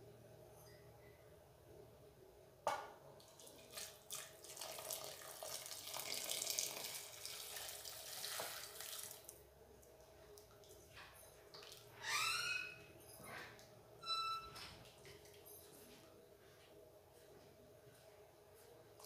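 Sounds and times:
water pouring into a pot: 3.2s - 9.4s.

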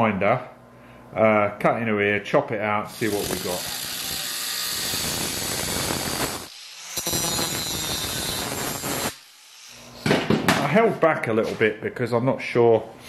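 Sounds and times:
angle grinder cutting steel: 2.9s - 10.0s.

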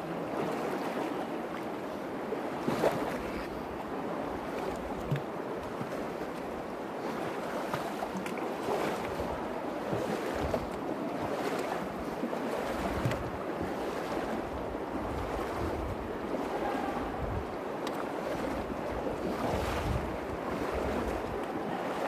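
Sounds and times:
wind buffeting microphone: 9.0s - 22.0s.

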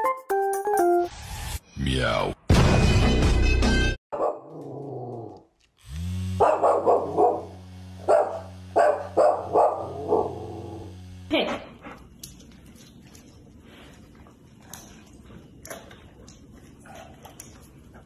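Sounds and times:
dog barking: 4.2s - 4.5s, 6.4s - 10.8s
fan motor humming: 5.8s - 11.8s.

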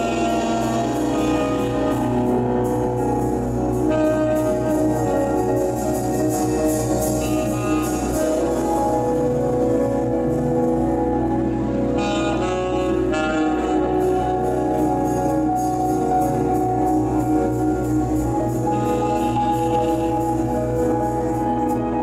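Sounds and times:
jazz band playing: 0.0s - 22.0s
tenor saxophone long notes: 0.0s - 22.0s.

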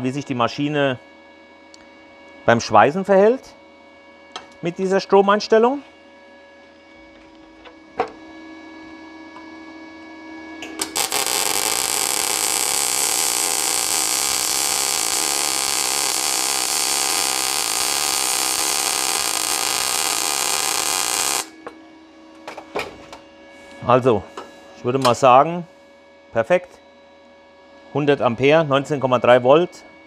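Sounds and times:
welder low hum: 10.4s - 21.8s
welding arc crackling hiss: 10.6s - 21.6s.

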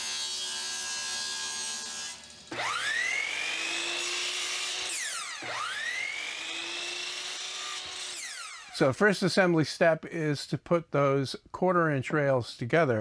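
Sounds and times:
saw blade cutting wood: 0.0s - 8.8s
table saw running: 0.0s - 8.8s
miter saw motor whining: 2.1s - 8.8s.

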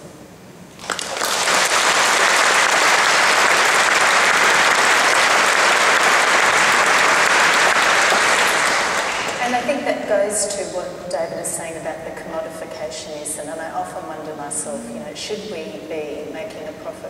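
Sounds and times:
audience applauding: 0.8s - 9.6s.

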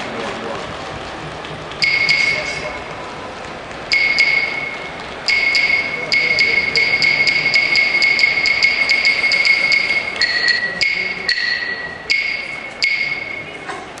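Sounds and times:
wooden clappers clacking: 3.9s - 13.3s.

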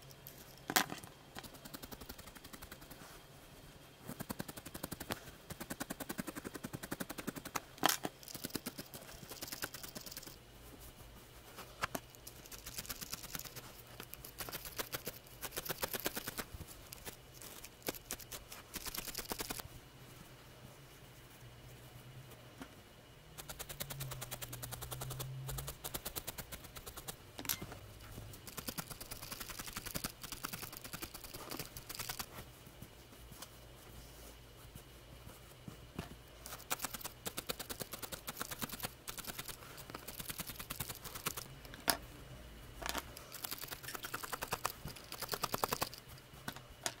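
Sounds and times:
felting needle poking wool: 1.4s - 3.2s, 4.0s - 10.9s.

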